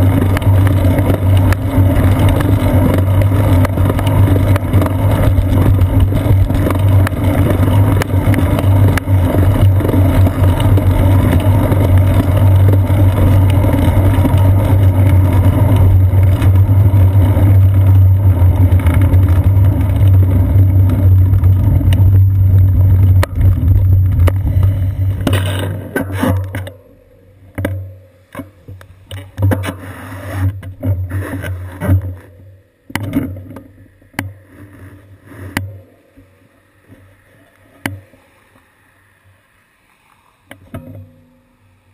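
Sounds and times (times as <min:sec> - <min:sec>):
wind noise: 0:00.0 - 0:25.8
bicycle road rumble: 0:00.0 - 0:41.9.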